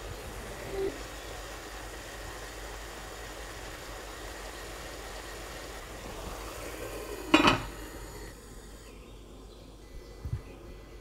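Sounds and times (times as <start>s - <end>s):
onions sizzling in a frying pan: 0.0s - 8.9s
glass lid clattering on pan: 7.3s - 7.7s.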